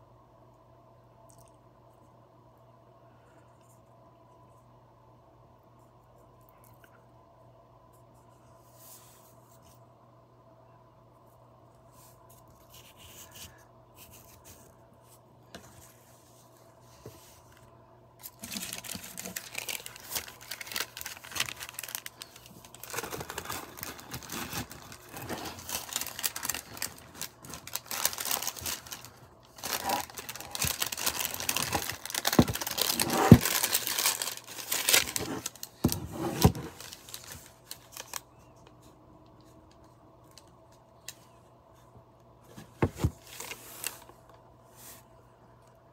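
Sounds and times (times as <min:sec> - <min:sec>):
paper rustling and crinkling: 0:18.2 - 0:38.9, 0:42.5 - 0:44.2.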